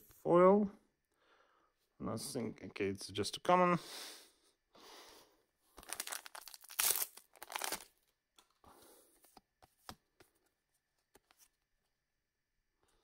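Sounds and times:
wrapper ripping and crinkling: 0:05.8 - 0:08.0.

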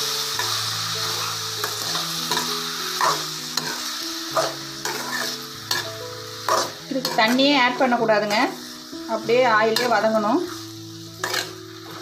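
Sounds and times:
vegetables sizzling in oil: 0:00.0 - 0:12.0
metal spoon scraping pan: 0:01.7 - 0:07.6, 0:09.7 - 0:12.0.

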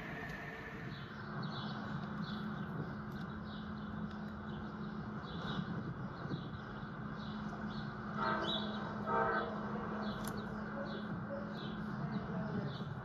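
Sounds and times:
steady low hum: 0:00.0 - 0:13.0
model train horn blasts: 0:08.2 - 0:09.5.

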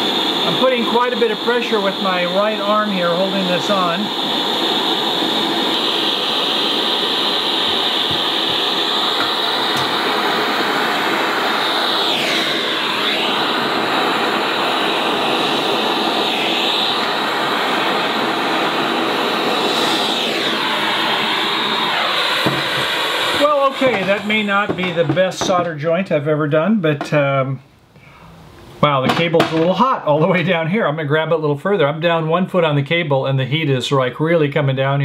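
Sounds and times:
propane torch hissing: 0:00.0 - 0:26.2.

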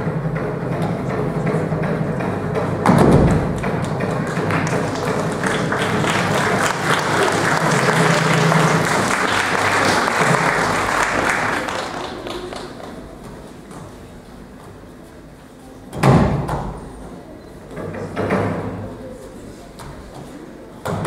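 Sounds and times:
faint music: 0:00.0 - 0:21.0
heavy thud on a mat: 0:02.8 - 0:03.6
audience applause: 0:03.6 - 0:13.1.

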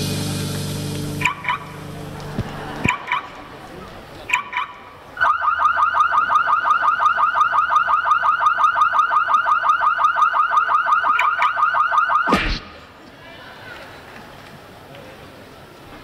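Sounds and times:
fast warbling alarm chirp: 0:01.2 - 0:01.8, 0:02.9 - 0:03.4, 0:04.3 - 0:12.4.

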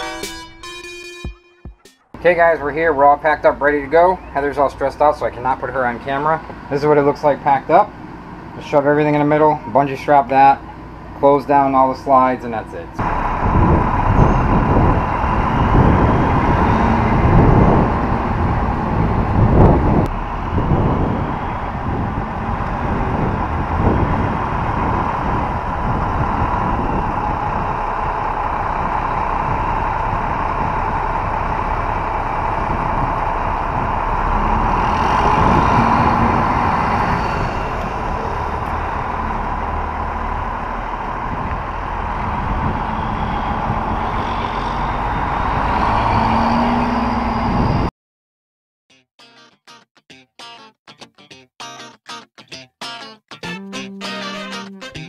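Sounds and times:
road noise: 0:02.1 - 0:47.9
vehicle engine running: 0:13.0 - 0:44.4.

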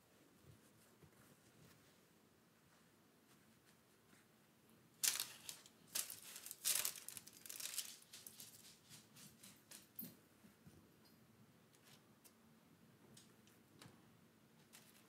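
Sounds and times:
parchment paper crinkling: 0:05.0 - 0:09.8, 0:14.6 - 0:15.0.

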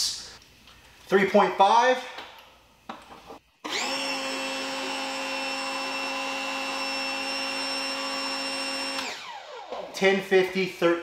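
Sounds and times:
pressure washer motor whine: 0:03.6 - 0:09.9.

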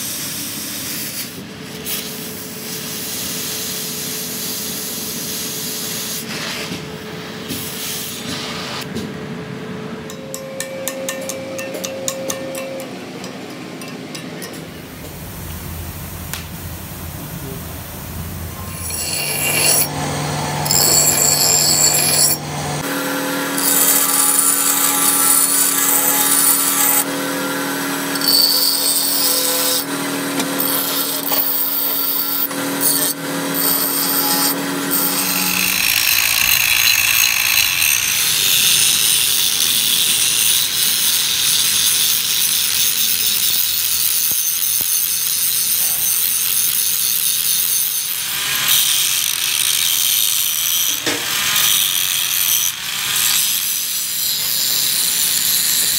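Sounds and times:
bench grinder whining: 0:18.1 - 0:44.0
angle grinder rasping on steel: 0:18.6 - 0:55.9.

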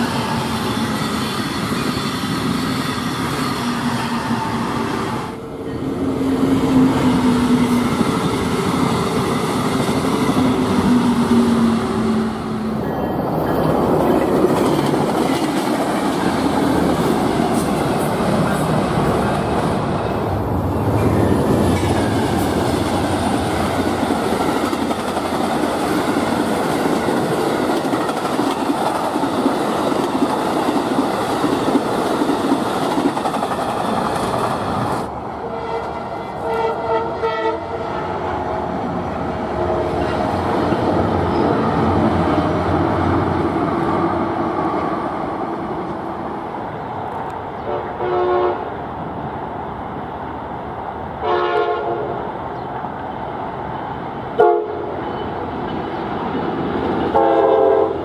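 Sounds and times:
distant train crossing a bridge: 0:00.0 - 0:58.0
train wheels clattering on rails: 0:13.5 - 0:19.8, 0:20.9 - 0:35.1.

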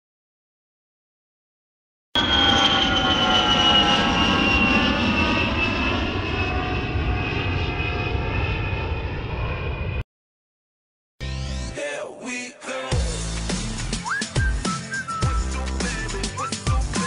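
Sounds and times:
jet engine whine and rumble: 0:02.2 - 0:10.0.

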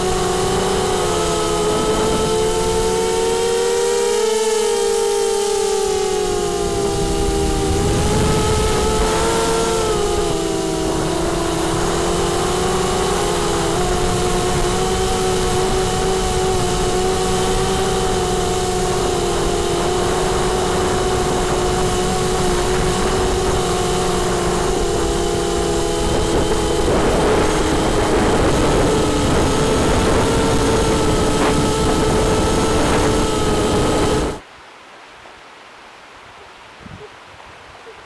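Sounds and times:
drone propellers whining: 0:00.0 - 0:34.4.

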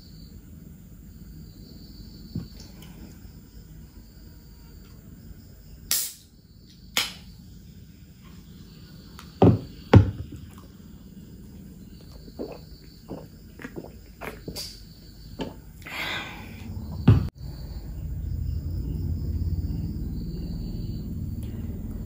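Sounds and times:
soft gulps: 0:10.2 - 0:17.0.

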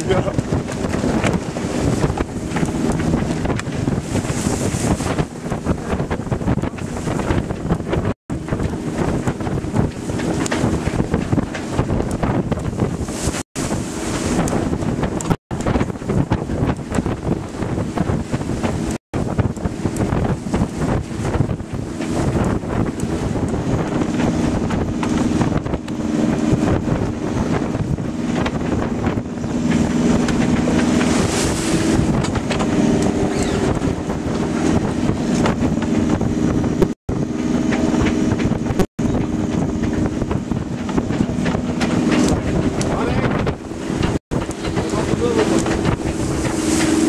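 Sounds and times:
water rushing past hull: 0:00.0 - 0:47.0
wind buffeting microphone: 0:00.0 - 0:47.0.

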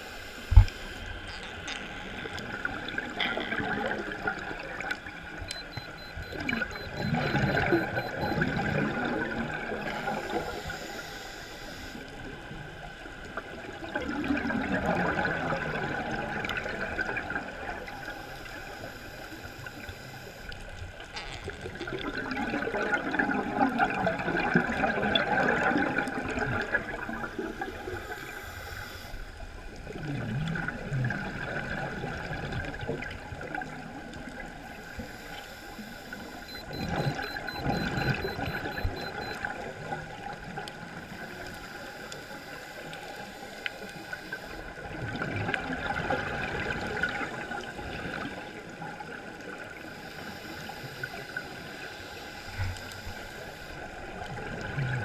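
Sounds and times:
diver's exhaled bubbles gurgling: 0:01.3 - 0:05.4, 0:06.0 - 0:10.4, 0:13.5 - 0:17.8, 0:21.6 - 0:28.0, 0:29.8 - 0:34.5, 0:44.7 - 0:49.6, 0:53.9 - 0:55.0.

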